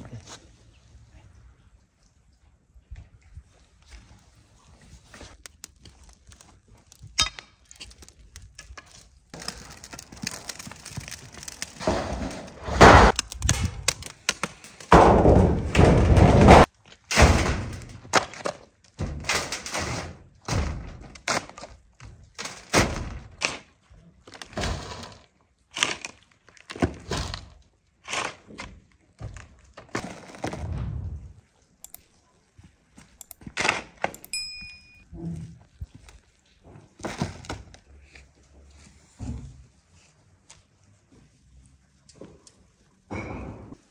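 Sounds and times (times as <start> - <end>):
soil thudding on metal sheet: 11.0 - 14.0, 14.9 - 18.2.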